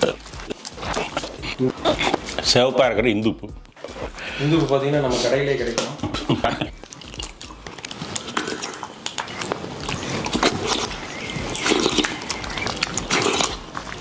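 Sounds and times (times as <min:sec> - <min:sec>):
wet smacking mouth noises: 0:00.0 - 0:02.4, 0:06.1 - 0:14.0.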